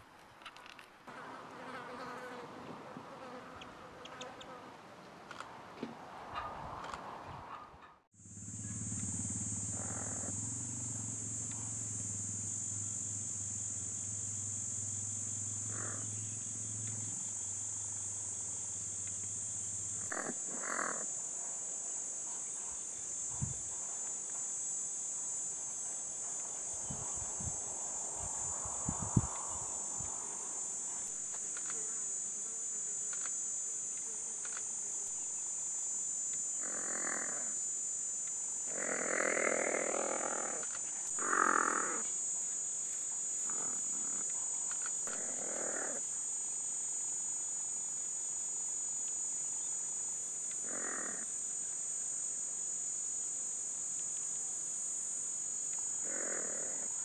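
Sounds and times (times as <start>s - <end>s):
insects chirring: 8.1s - 57.0s
low hum: 8.2s - 20.1s.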